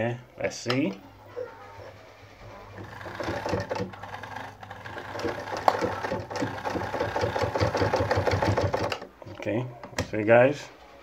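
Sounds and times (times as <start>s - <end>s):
sewing machine clattering: 2.7s - 9.4s.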